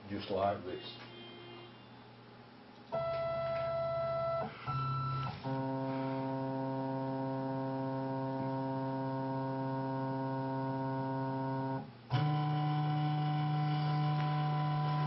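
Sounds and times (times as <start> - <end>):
electronic keyboard chord: 3.0 - 15.0.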